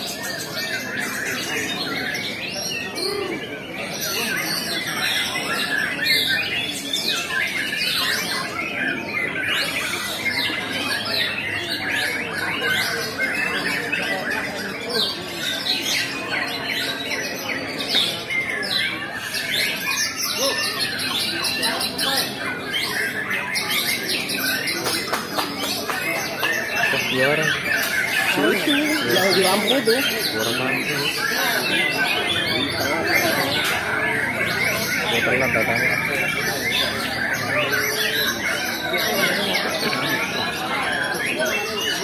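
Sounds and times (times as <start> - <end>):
chorus of songbirds singing: 0.0 - 42.0.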